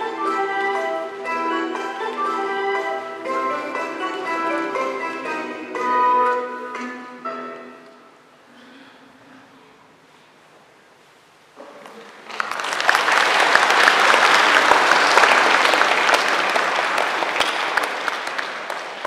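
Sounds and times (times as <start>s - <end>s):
audience applauding: 12.1s - 19.0s.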